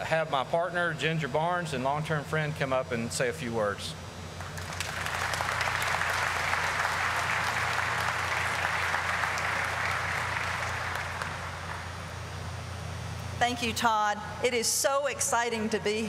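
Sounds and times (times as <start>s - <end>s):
low hum: 0.0s - 16.0s
audience applauding: 4.4s - 11.9s.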